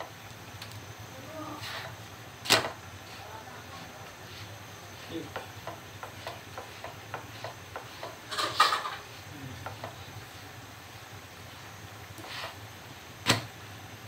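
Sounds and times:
spatula tapping in frying pan: 0:05.3 - 0:08.3, 0:09.6 - 0:10.0.

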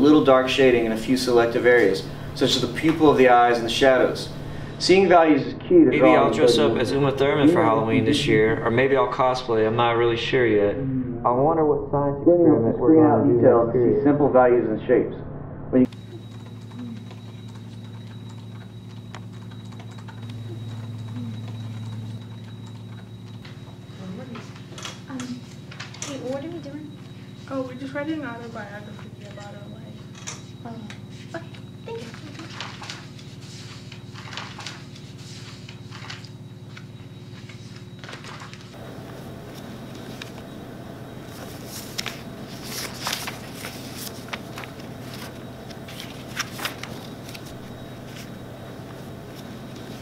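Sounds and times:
low hum: 0:00.0 - 0:23.4
faint high whine: 0:00.0 - 0:50.0
low electrical hum: 0:00.0 - 0:50.0
paper rustling: 0:25.4 - 0:26.3, 0:31.2 - 0:40.5, 0:41.2 - 0:50.0.

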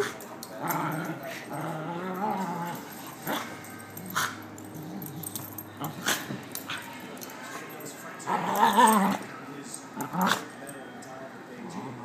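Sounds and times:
puppy growling: 0:00.0 - 0:06.9, 0:08.2 - 0:09.3, 0:10.0 - 0:10.6, 0:11.6 - 0:12.0.

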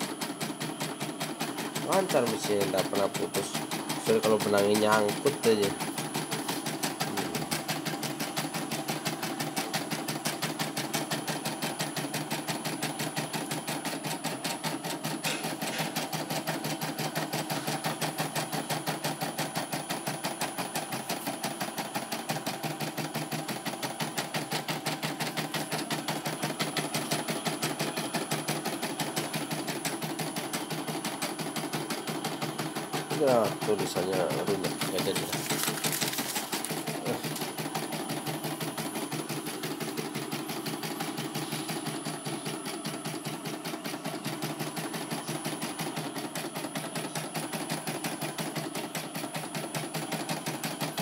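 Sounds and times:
embroidery machine stitching: 0:00.0 - 0:51.0.

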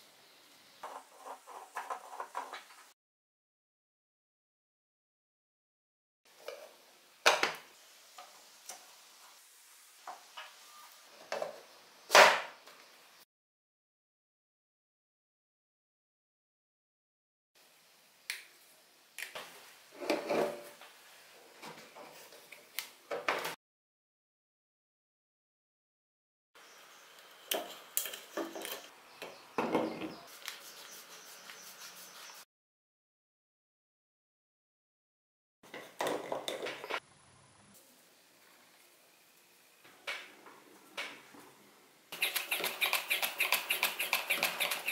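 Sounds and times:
faint steady hiss: 0:06.3 - 0:13.2, 0:17.6 - 0:23.2, 0:36.9 - 0:42.1.

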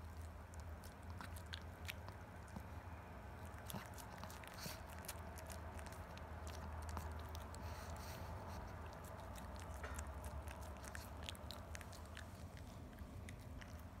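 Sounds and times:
dog gnawing a chew: 0:00.0 - 0:14.0
steady low hum: 0:00.0 - 0:14.0.

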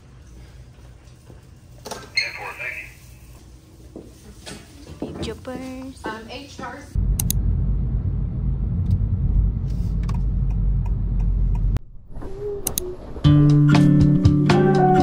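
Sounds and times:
steady low rumble: 0:06.9 - 0:13.7
music: 0:13.2 - 0:15.0.

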